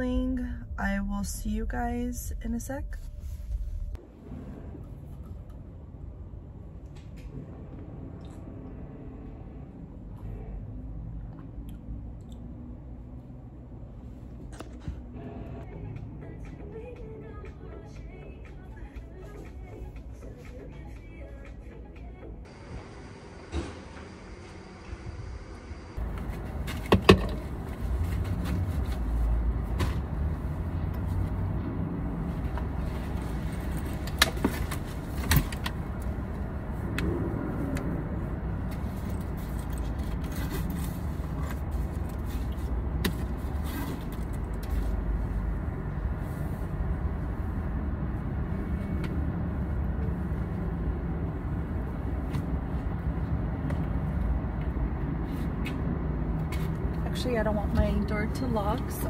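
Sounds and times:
car rumbling: 0.0 - 20.6, 22.2 - 59.0.

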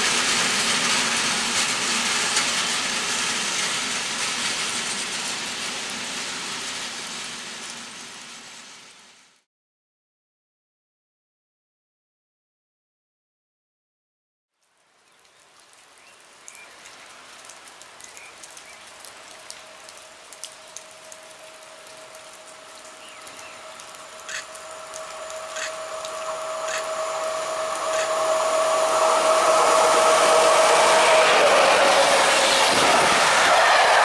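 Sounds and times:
electric train approaching: 0.0 - 9.3, 19.6 - 34.0
rain falling: 0.0 - 9.4, 14.6 - 34.0.

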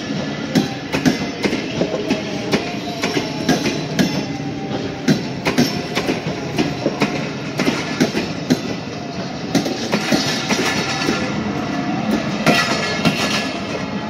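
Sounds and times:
train rolling noise: 0.0 - 14.0
train wheels clattering over rail joints: 5.1 - 8.8, 9.5 - 11.4, 12.1 - 13.8.

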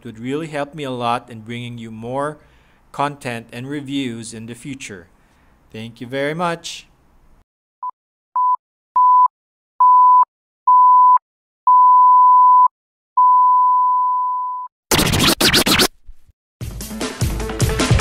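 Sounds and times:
electronic background music: 14.9 - 15.9
crackling noise burst: 14.9 - 16.3.

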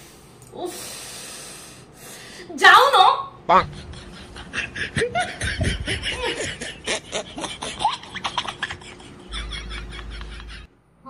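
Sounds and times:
person snickering: 3.6 - 10.7.

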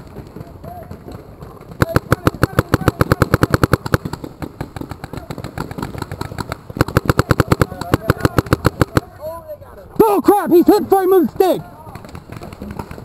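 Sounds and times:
paintball marker firing: 1.7 - 9.2.

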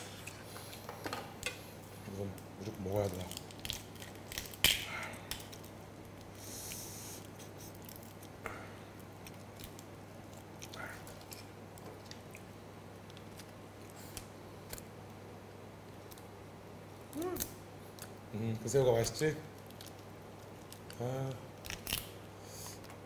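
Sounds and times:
faint low hum: 0.0 - 23.0
prawn shell cracking: 2.4 - 8.4, 19.5 - 23.0.

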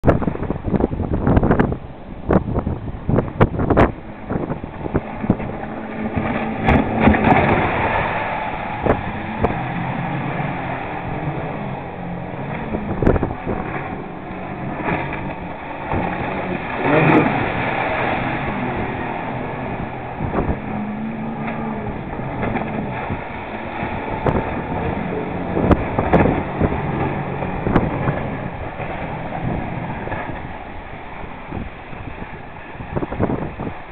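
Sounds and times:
hull spray surging: 0.0 - 33.9
outboard motors running: 0.0 - 33.9
wind buffeting microphone: 0.0 - 33.9.

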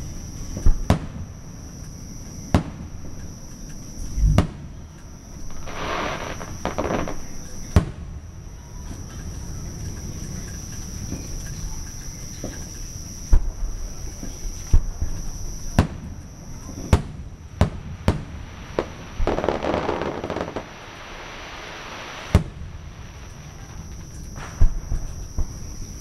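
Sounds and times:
fireworks crackle: 0.0 - 26.0
fireworks bangs: 2.5 - 3.2, 4.1 - 9.1, 12.4 - 26.0.

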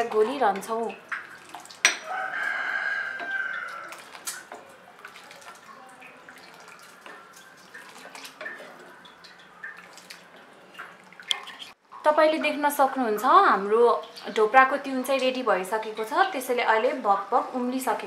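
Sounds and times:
ladle stirring and clinking in pot: 0.0 - 11.5
small splashes and drips: 0.0 - 12.1, 13.6 - 15.4.

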